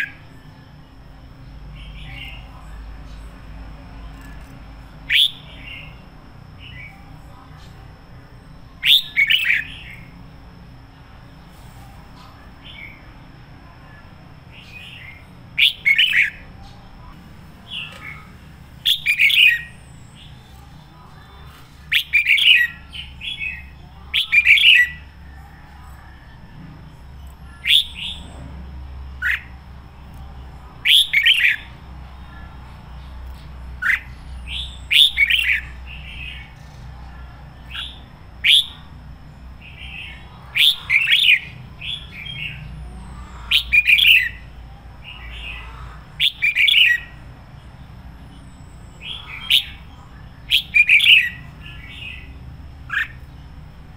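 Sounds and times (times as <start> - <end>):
bird whistled song: 5.0 - 6.0, 8.8 - 10.1, 14.6 - 16.4, 17.7 - 20.3, 21.9 - 25.1, 27.5 - 28.3, 30.8 - 31.7, 33.8 - 36.8, 37.6 - 38.9, 46.2 - 47.2, 48.5 - 53.4.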